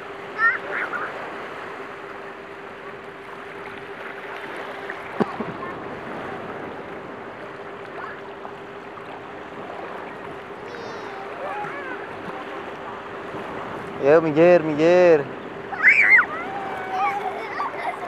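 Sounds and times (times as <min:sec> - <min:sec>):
faint steady hum: 0:00.0 - 0:18.0
shallow sea water washing: 0:00.0 - 0:18.0
child squealing: 0:10.8 - 0:12.0, 0:15.7 - 0:17.7.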